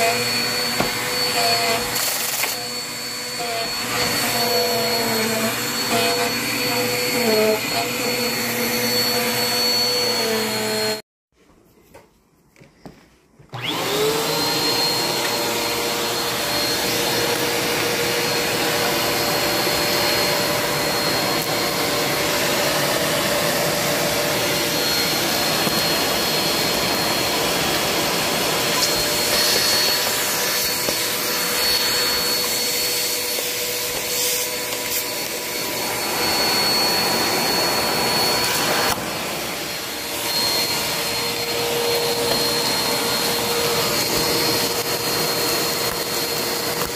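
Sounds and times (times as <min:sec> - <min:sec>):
vacuum cleaner motor running: 0:00.0 - 0:11.0, 0:13.5 - 0:46.9
suction rush along rug: 0:13.6 - 0:46.9.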